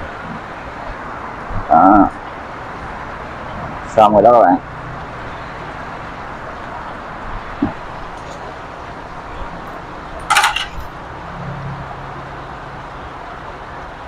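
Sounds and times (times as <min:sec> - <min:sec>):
outdoor background noise: 0:00.0 - 0:14.0
kitchen utensils clattering: 0:10.2 - 0:10.9.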